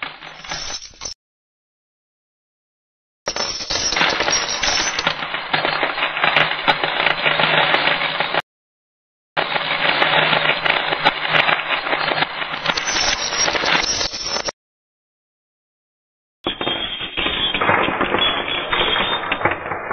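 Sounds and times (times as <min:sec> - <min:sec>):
reversed coin clatter: 0:00.0 - 0:01.2, 0:03.3 - 0:05.6, 0:09.8 - 0:14.5
metal coins clattering: 0:00.2 - 0:01.2, 0:03.3 - 0:05.3, 0:11.4 - 0:14.5.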